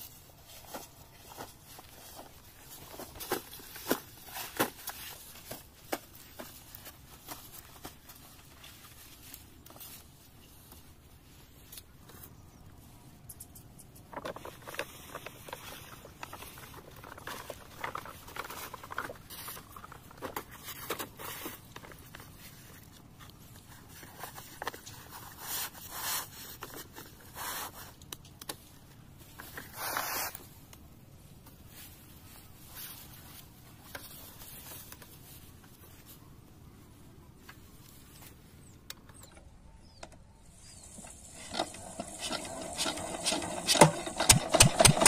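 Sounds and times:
plastic pipe rustling: 0.0s - 12.6s, 14.0s - 30.5s, 31.4s - 36.2s, 40.5s - 45.0s
small ticks: 13.2s - 14.3s.

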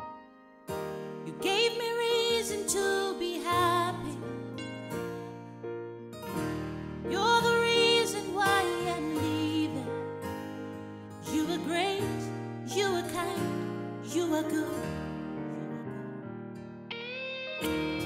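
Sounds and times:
gospel song with keyboard chords: 1.2s - 5.0s, 7.0s - 10.2s.

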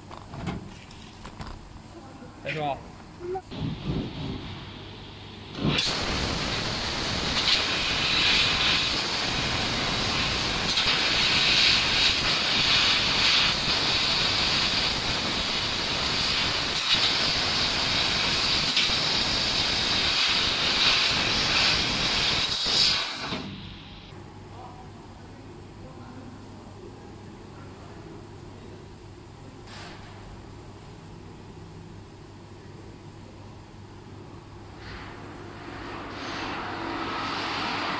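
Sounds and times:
laser cutter assist gas hissing: 3.5s - 24.1s.

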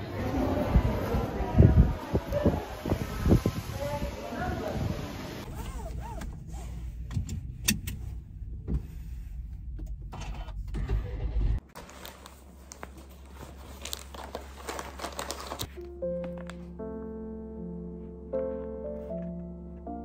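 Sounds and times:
rustling and clicks in car seat: 5.5s - 10.8s
soft handling noises: 11.8s - 16.8s.

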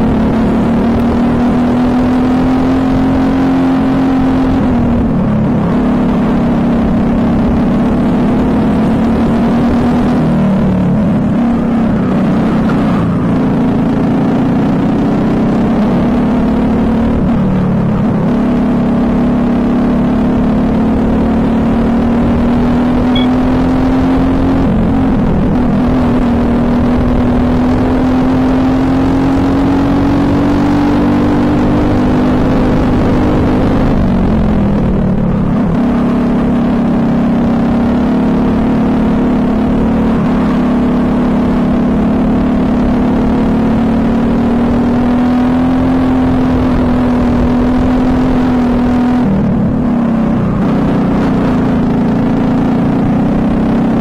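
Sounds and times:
kart engine racing: 0.0s - 54.0s
wind noise: 22.2s - 36.4s.

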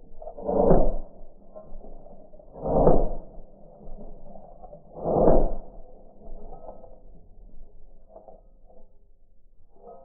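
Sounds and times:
slow motion gunshots whooshing: 2.4s - 4.3s.

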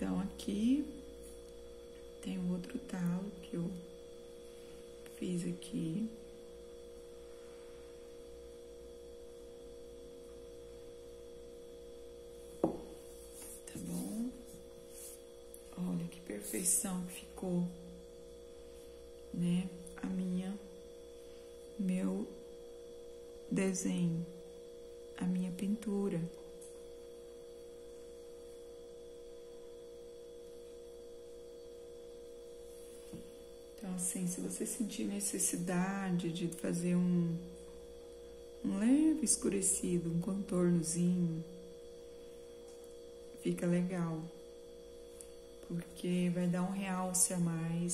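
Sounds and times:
electrical hum: 0.0s - 47.9s
cup set down on table: 12.6s - 13.0s.

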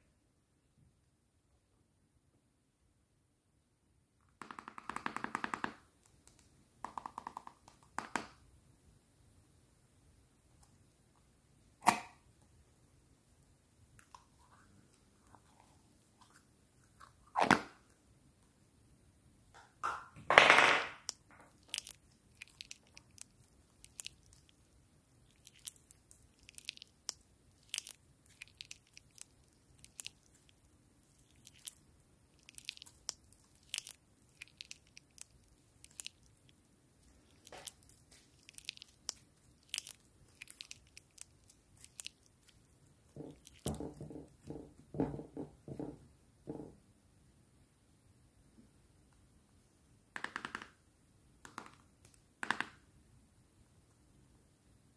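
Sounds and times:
slime crackling and clicking: 21.0s - 24.7s, 25.3s - 36.6s, 37.2s - 42.6s, 43.3s - 43.8s
slime squishing: 21.0s - 44.8s
sticky slime squelches: 21.0s - 44.8s.

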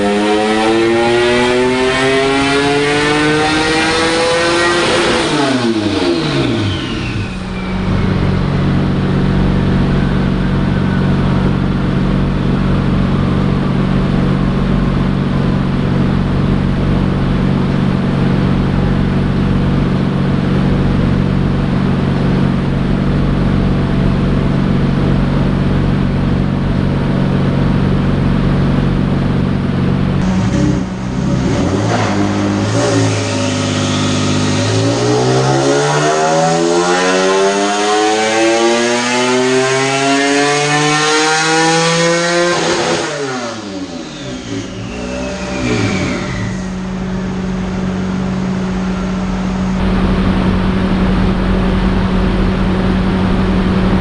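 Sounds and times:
engine idling: 6.5s - 31.8s, 43.6s - 54.0s
engine revs falling: 28.1s - 54.0s.

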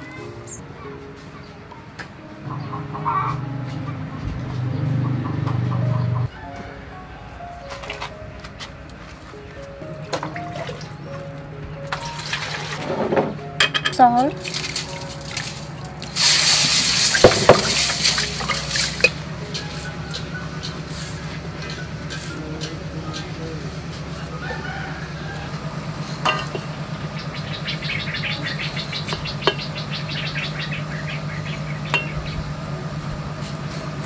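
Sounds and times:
salt poured into water: 14.4s - 19.1s
steady low hum: 18.3s - 34.0s.

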